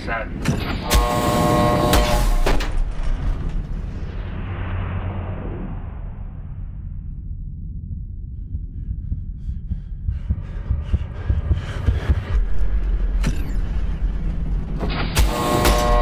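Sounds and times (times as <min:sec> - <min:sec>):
steady electronic tone: 0:00.8 - 0:02.5
deep bass drone: 0:03.3 - 0:16.0.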